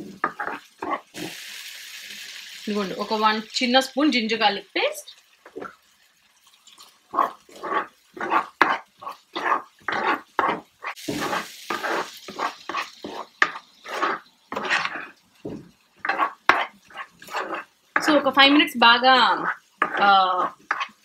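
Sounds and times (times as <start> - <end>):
spatula scraping a wok: 0.0 - 1.5, 7.1 - 21.0
sizzling: 0.0 - 21.0.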